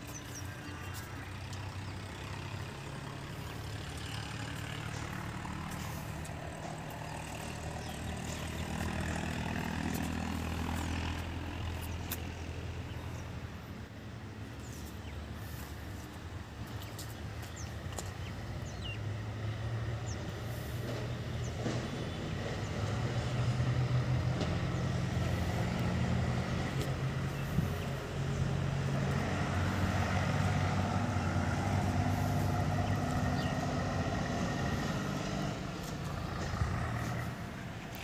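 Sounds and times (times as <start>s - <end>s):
heavy diesel engine running: 0.0s - 11.8s, 20.0s - 37.9s.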